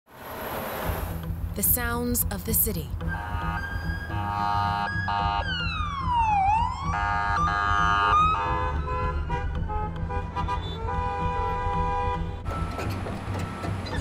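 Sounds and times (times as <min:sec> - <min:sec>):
vehicle horns honking: 0:03.1 - 0:05.5, 0:07.0 - 0:13.1
emergency vehicle siren: 0:03.1 - 0:14.0.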